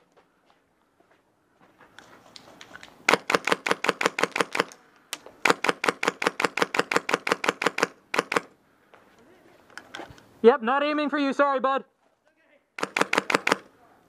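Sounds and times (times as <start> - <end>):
airsoft gun firing bursts: 3.1 - 4.8, 5.4 - 8.5, 12.8 - 13.7.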